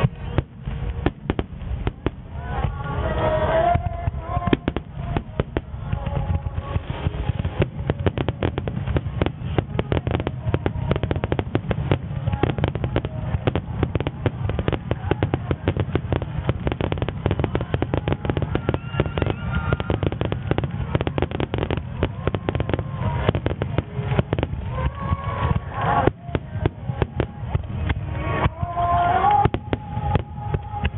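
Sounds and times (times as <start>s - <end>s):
fireworks bangs and crackles: 0.0s - 30.9s.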